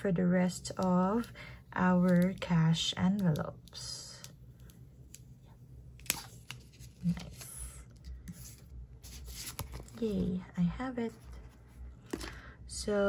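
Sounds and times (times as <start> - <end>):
plastic envelope rustling: 6.0 - 10.4.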